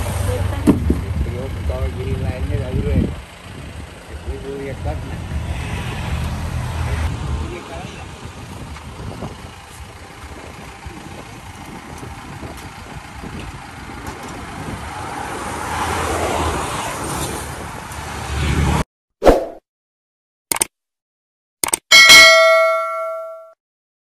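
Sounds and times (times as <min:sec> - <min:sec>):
road traffic noise: 0:00.0 - 0:18.9
motorcycle passing: 0:04.2 - 0:07.6, 0:14.9 - 0:18.8.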